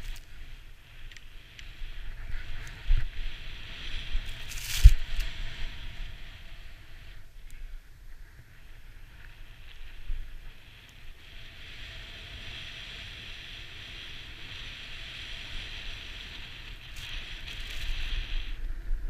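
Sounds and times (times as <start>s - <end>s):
snowboard hissing through snow: 0.0s - 7.2s, 8.4s - 18.9s
wind rumble on microphone: 0.0s - 19.0s.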